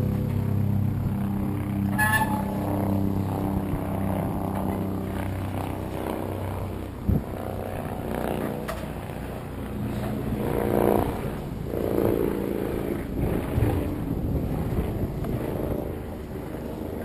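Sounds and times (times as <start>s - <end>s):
engine drone: 0.0s - 17.0s.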